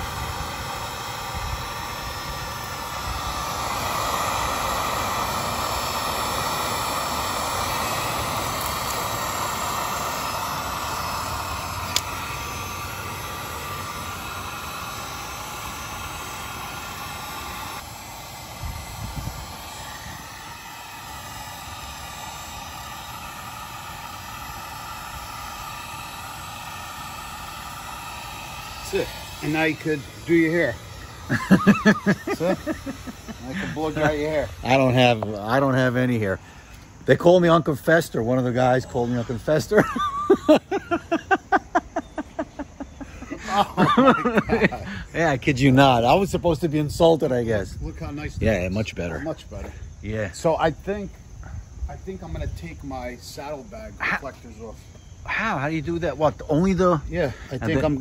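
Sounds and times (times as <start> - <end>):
heat gun fan whirring: 0.0 - 58.0
sharp click: 11.9 - 12.1.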